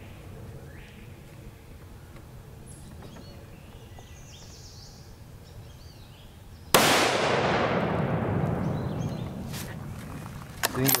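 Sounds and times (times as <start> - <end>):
loud rifle shot echoing: 6.7 - 9.5.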